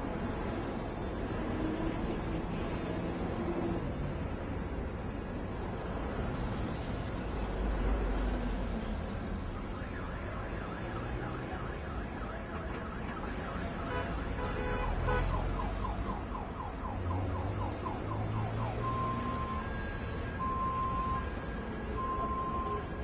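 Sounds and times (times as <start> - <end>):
idling traffic rumble: 15.6 - 23.0
car alarm: 18.2 - 21.3.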